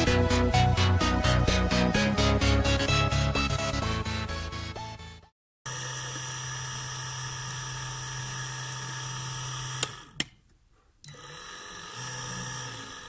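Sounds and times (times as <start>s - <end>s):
small pump whining: 5.7s - 10.4s, 11.0s - 13.0s.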